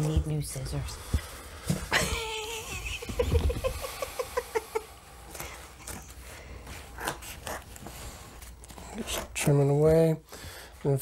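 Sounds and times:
woman laughing: 1.9 - 4.9.

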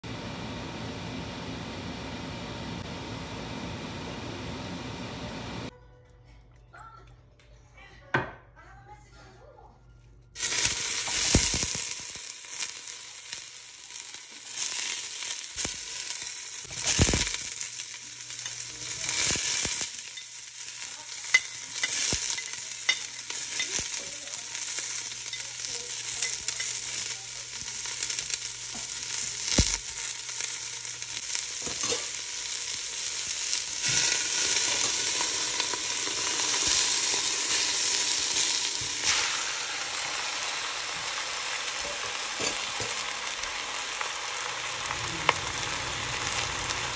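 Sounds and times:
garlic and onion sizzling in oil: 10.4 - 46.9.

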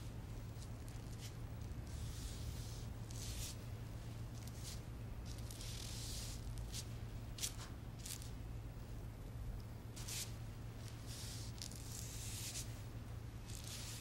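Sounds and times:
steady low hum: 0.0 - 14.0
brush swishing across paper: 0.9 - 3.6, 4.4 - 8.3, 10.0 - 12.8, 13.4 - 14.0.

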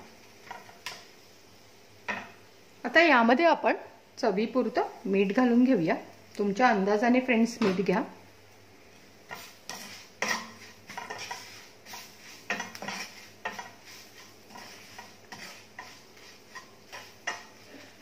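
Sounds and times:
wooden spatula scraping a pan: 0.4 - 1.1, 8.9 - 18.0.

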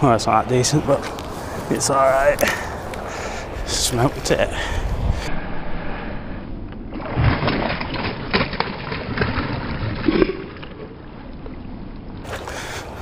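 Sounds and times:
fish thrashing and splashing: 6.9 - 12.5.

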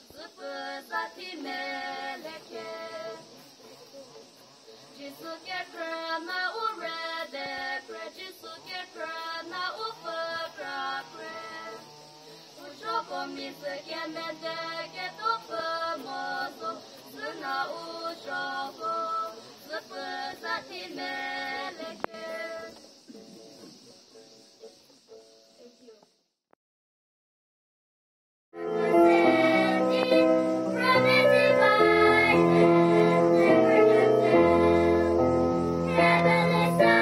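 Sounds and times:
two girls singing a duet: 0.0 - 3.5, 4.9 - 11.9, 12.5 - 22.9, 28.6 - 37.0.

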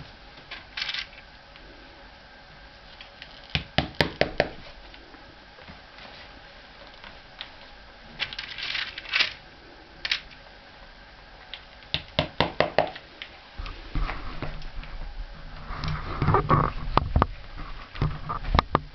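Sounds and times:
low hum: 13.0 - 18.9.

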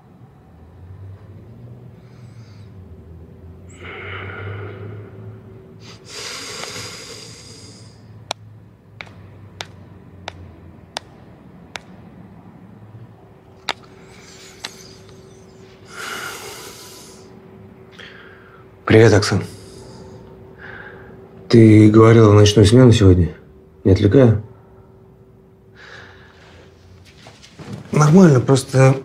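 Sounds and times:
man breathing out heavily: 3.7 - 8.1, 15.8 - 17.3
tapping on smartphone screen: 9.0 - 12.0.

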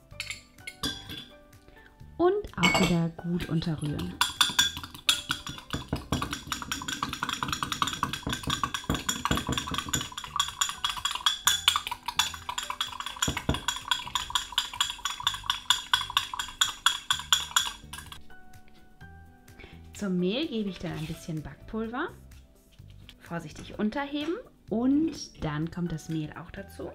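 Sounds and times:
background music: 0.0 - 26.9
metal fork clinking against glass mug: 0.1 - 1.3, 2.6 - 3.0, 3.8 - 18.2.

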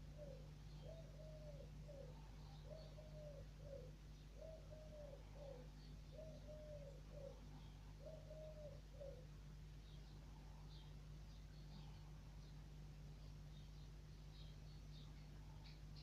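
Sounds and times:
dove cooing: 0.0 - 9.4
steady low hum: 0.0 - 16.0.

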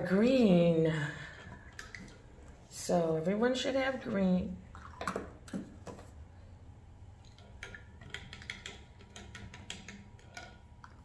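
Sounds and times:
plastic cups and brushes tapping: 7.2 - 11.0.

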